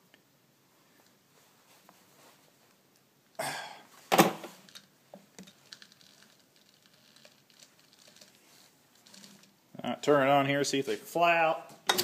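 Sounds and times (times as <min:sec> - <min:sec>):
man coughing: 0:03.4 - 0:03.8.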